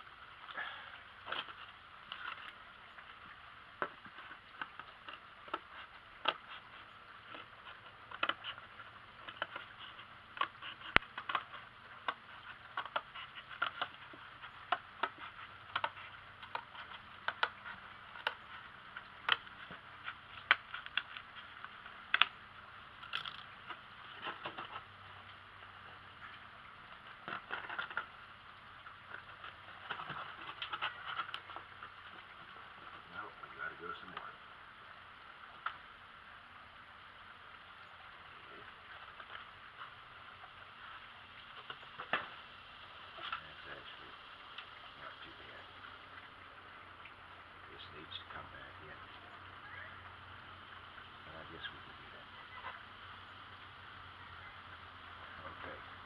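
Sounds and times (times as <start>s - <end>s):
cardboard rustling: 27.1s - 28.1s.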